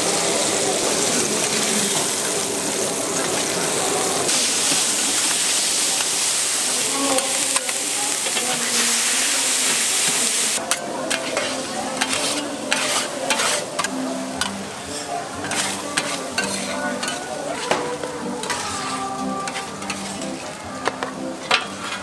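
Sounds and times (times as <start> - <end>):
noodles sizzling on griddle: 0.0 - 22.0
metal spatulas scraping griddle: 10.6 - 22.0.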